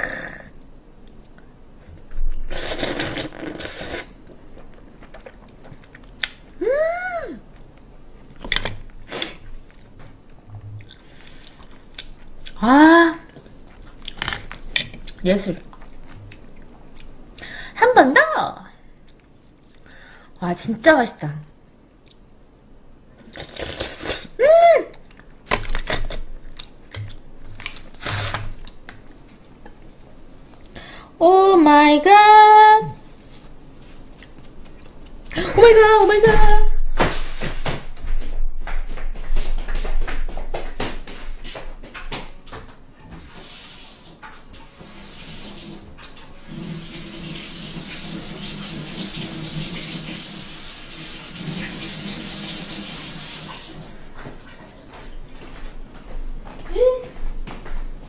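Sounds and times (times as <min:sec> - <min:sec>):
oyster slurped wet suck: 0:02.5 - 0:04.2
slurping smacks: 0:02.5 - 0:04.2
person humming: 0:06.6 - 0:07.4
mouth chewing: 0:34.0 - 0:35.4.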